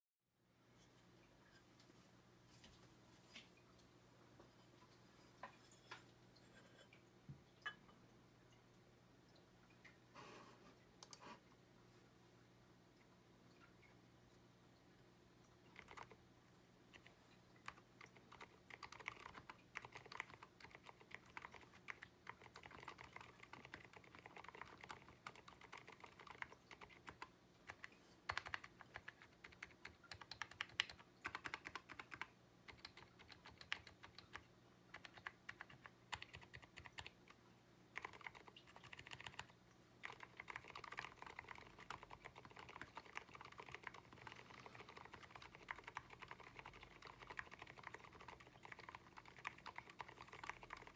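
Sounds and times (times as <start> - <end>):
mechanical keyboard typing: 15.7 - 16.2, 16.9 - 37.4, 38.0 - 50.9.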